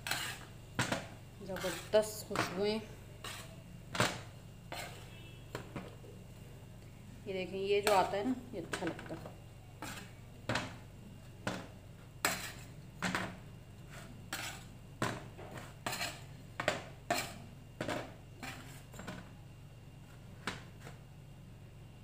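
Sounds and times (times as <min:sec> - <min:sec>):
metal spatula scraping baking tray: 0:00.0 - 0:05.2, 0:09.8 - 0:10.2, 0:12.2 - 0:13.2, 0:13.8 - 0:16.4, 0:17.0 - 0:19.2.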